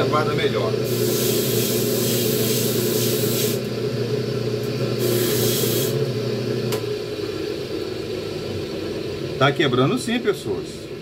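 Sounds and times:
small electric motor humming: 0.8s - 3.8s, 4.9s - 6.2s.

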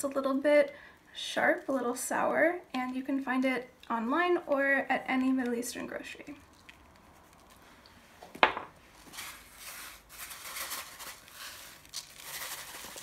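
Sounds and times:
bag of seeds rustling: 8.9s - 13.0s.

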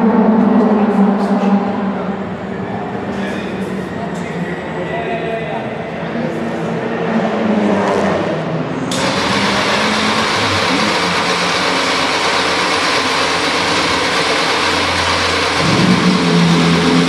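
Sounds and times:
racing car engine idling: 8.9s - 17.0s.

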